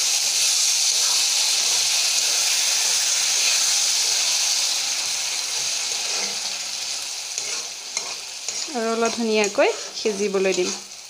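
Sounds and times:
masala sizzling in hot oil: 0.0 - 11.0
spatula stirring: 5.4 - 11.0.

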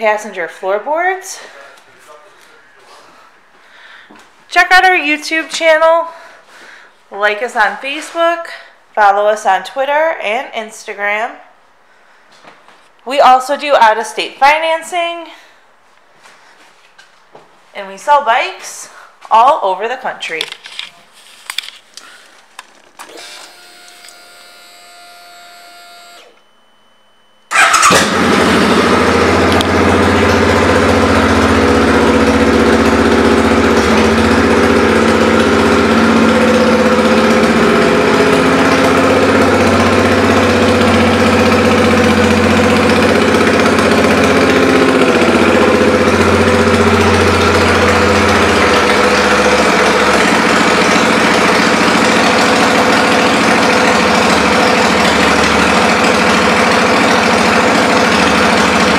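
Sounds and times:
motorcycle engine idling: 27.5 - 58.9.

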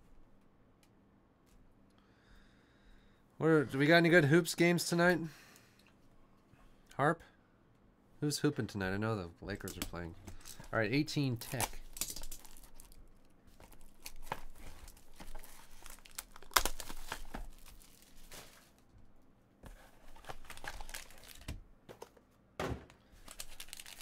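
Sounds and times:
card pack wrappers crinkling and tearing: 9.6 - 18.8, 19.9 - 21.6, 23.2 - 24.0
wrapper snaps: 11.4 - 13.0, 13.6 - 18.8, 23.2 - 24.0.

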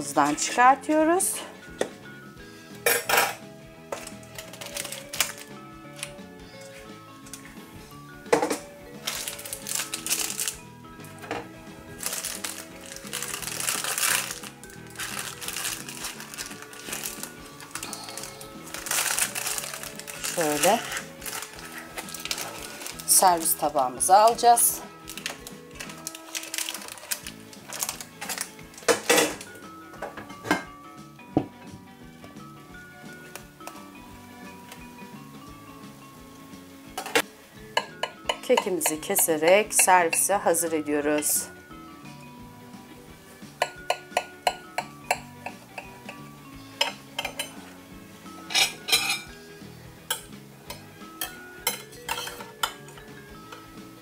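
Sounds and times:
soft background music: 0.0 - 54.0
cutlery clinking on a plate: 2.8 - 3.4, 46.8 - 47.6, 48.4 - 49.3, 50.1 - 53.7.

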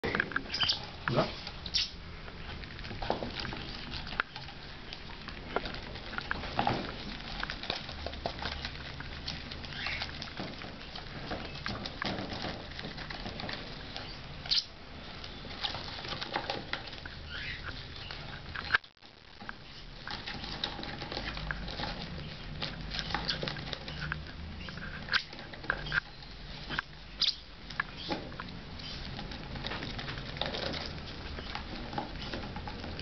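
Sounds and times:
bird chicks begging chirps: 0.4 - 2.6, 9.6 - 11.9, 13.8 - 15.9, 17.1 - 18.8, 22.2 - 29.1.

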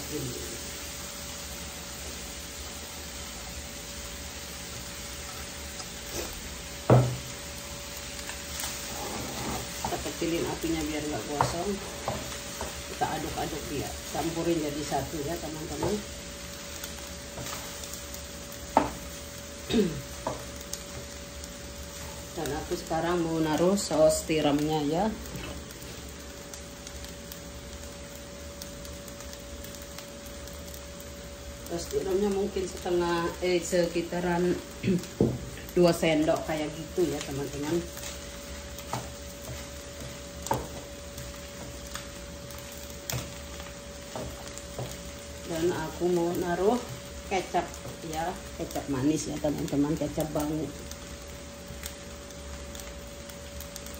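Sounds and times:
faint sizzle: 0.0 - 53.9
steady hum: 0.0 - 53.9
wooden spatula knocking frying pan: 6.9 - 7.3, 18.7 - 19.0, 38.9 - 40.9
spatula scraping fried rice in pan: 17.3 - 17.8.

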